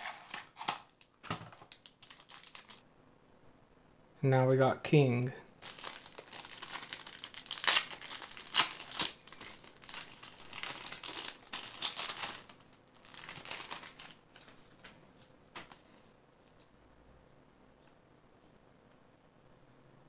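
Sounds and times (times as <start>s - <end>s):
plastic packaging crinkling: 0.0s - 2.8s, 5.6s - 15.0s.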